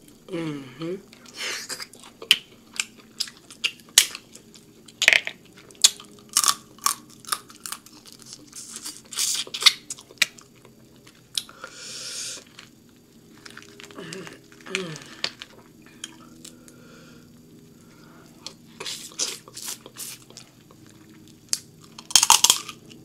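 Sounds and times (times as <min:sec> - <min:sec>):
slurping and finger-sucking: 0:18.4 - 0:20.4.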